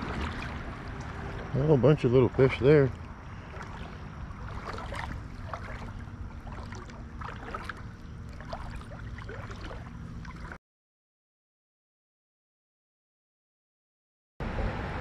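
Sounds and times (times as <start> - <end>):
creek water gurgling and splashing: 0.0 - 10.6
low steady rumble: 0.0 - 10.6.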